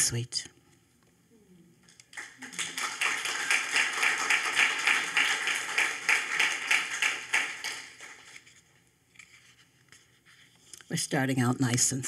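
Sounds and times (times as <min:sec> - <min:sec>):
audience clapping: 0:02.0 - 0:08.6.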